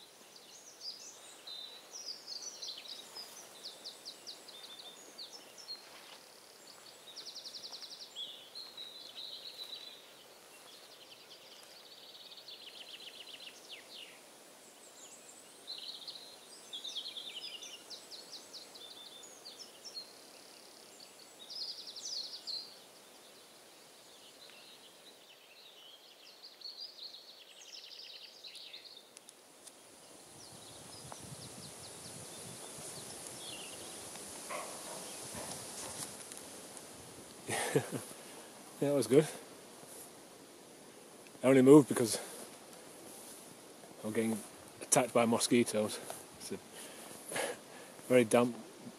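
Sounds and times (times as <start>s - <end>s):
birds chirping and trilling: 0.0s - 48.9s
faint high hiss: 0.0s - 48.9s
rustling: 29.2s - 41.4s, 42.0s - 44.8s.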